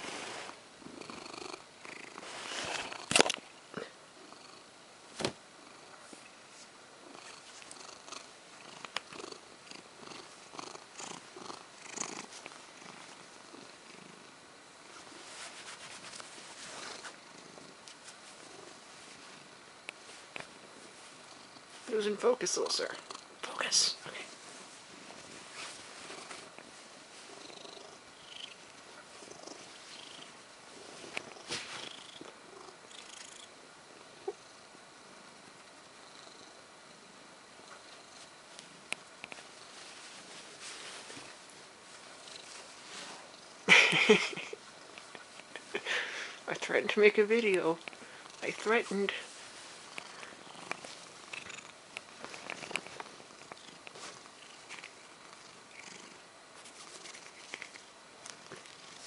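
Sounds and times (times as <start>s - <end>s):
cat purring: 0.0s - 3.2s, 3.8s - 4.8s, 7.0s - 59.0s
bed sheet rustling: 14.9s - 17.2s
bedsheets rustling: 14.9s - 17.2s, 24.3s - 27.4s, 39.4s - 43.3s.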